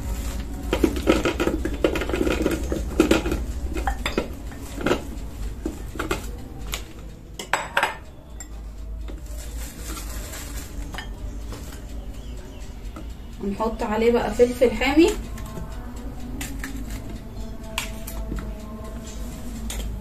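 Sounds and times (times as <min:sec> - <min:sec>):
bowls and utensils clinking: 0:00.6 - 0:11.9.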